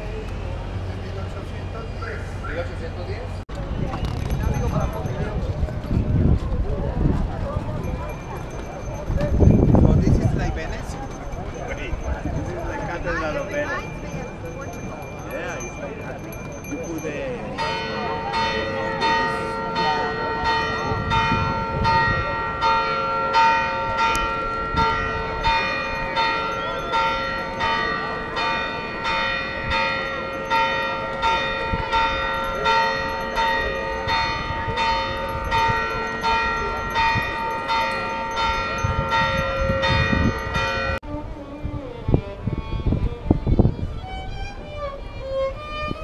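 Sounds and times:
church bells ringing: 7.5s - 41.0s.

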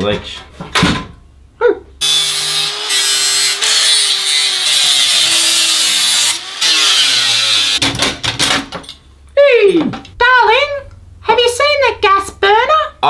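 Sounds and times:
angle grinder cutting metal: 2.0s - 7.8s.

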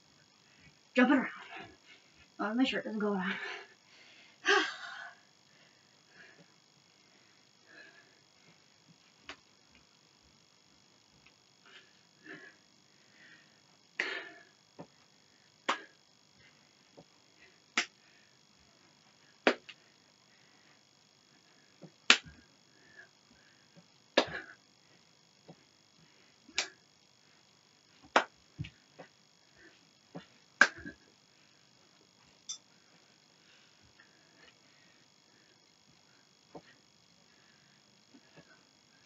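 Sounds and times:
hands slapping body: 19.4s - 19.8s, 22.1s - 22.4s, 28.0s - 28.3s, 30.6s - 30.9s.

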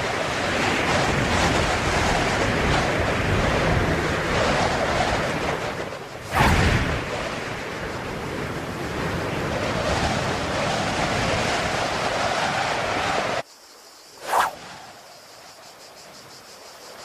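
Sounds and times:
wind rush: 0.0s - 13.4s, 14.1s - 15.4s
loud whoosh: 6.2s - 7.0s.

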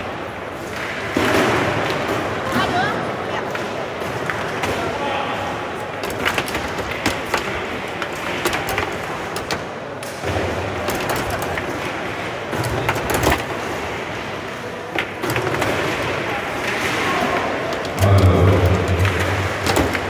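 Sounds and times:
murmur of voices: 1.6s - 20.0s
foosball ball clacks and knocks: 6.0s - 13.9s, 14.9s - 17.0s, 17.8s - 20.0s.

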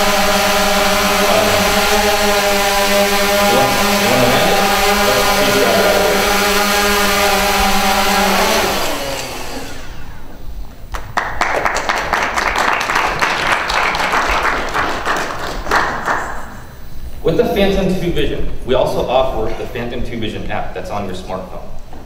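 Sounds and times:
audience applauding: 0.0s - 9.8s, 10.9s - 16.5s
drone propellers buzzing: 0.0s - 10.5s.

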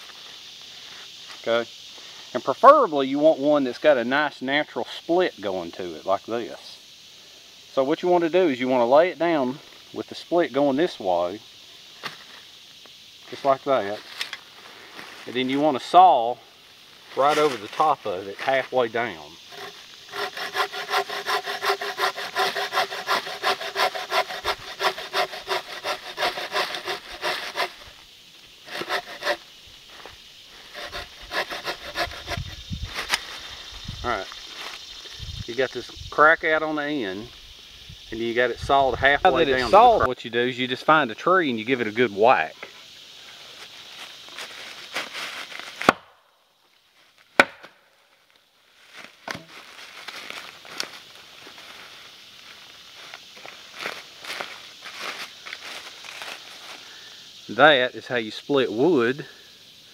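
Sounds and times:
bow saw cutting log: 18.4s - 28.0s, 28.6s - 33.2s
log whacking against tree trunk: 45.6s - 46.2s, 47.3s - 47.8s, 49.2s - 50.2s.

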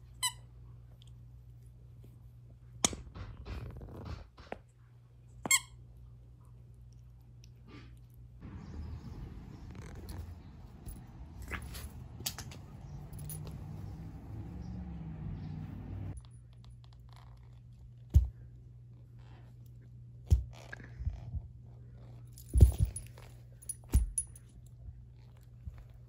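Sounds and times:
steady low hum: 6.0s - 16.8s, 17.6s - 26.0s
collar tag and clip jingling: 9.8s - 16.1s, 22.4s - 24.6s.

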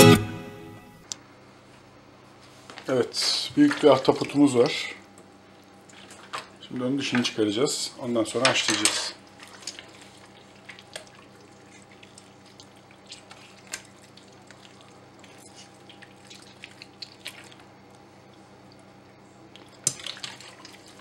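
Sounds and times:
wet clicks and drips: 8.7s - 21.0s.

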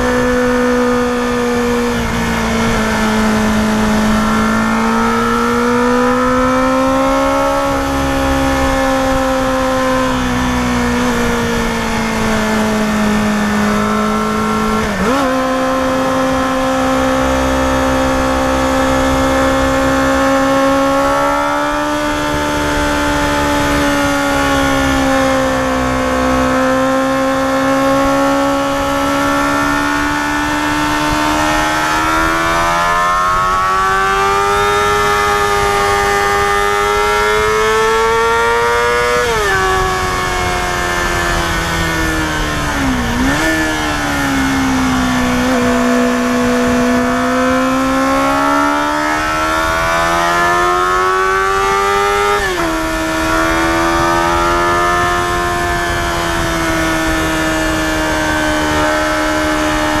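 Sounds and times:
motorcycle engine revving uphill: 0.0s - 60.0s
wind rush: 0.0s - 60.0s.

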